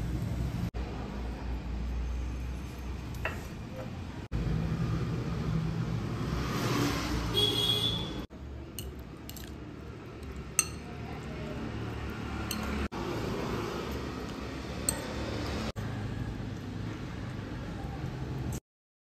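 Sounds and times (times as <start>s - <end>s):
fork clinking against bowl: 10.5s - 10.9s, 12.5s - 12.8s.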